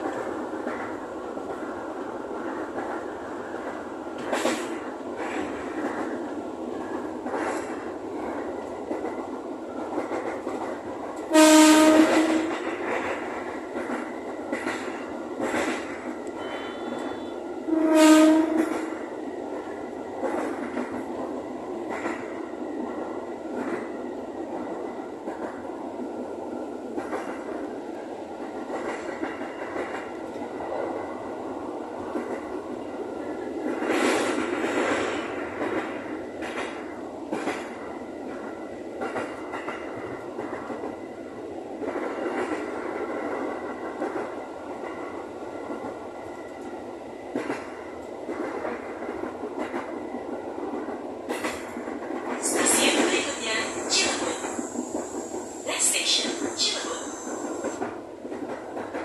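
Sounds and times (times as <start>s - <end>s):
train running noise: 0.0s - 59.0s
train horn blast: 11.3s - 12.6s, 16.4s - 18.9s.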